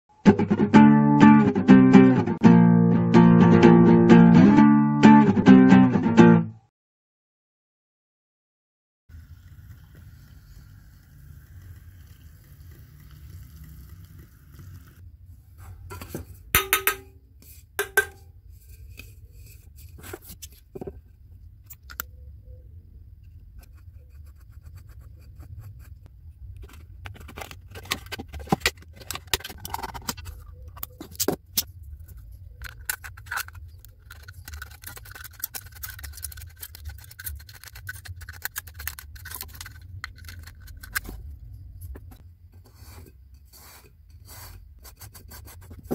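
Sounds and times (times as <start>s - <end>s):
scissors cutting metal can: 32.7s - 41.1s.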